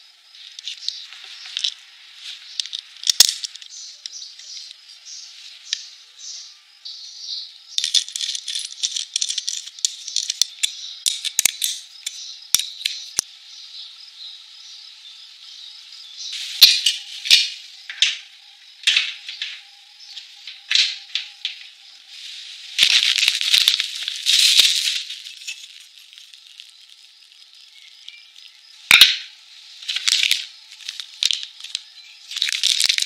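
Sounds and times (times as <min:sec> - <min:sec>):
metal clamp clicking and rattling: 0:07.8 - 0:13.2
plastic packaging crinkling: 0:22.8 - 0:27.2, 0:29.9 - 0:33.0.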